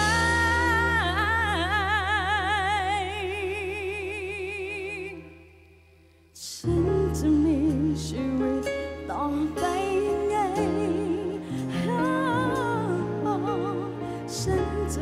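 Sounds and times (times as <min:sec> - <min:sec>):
band music: 0:00.0 - 0:02.0
woman singing with vibrato: 0:00.0 - 0:05.5, 0:06.4 - 0:15.0.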